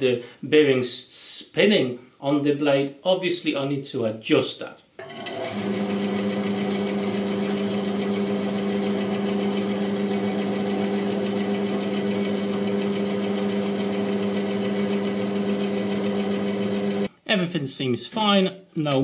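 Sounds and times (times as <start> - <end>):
bandsaw running: 5.0 - 17.1.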